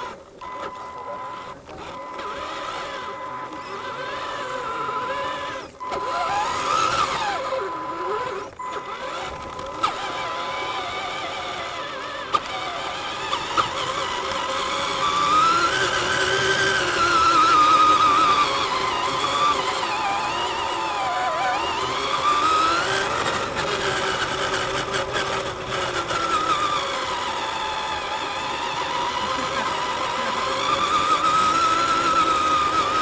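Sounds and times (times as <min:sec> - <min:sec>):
toy truck electric motor whining: 0:00.0 - 0:33.0.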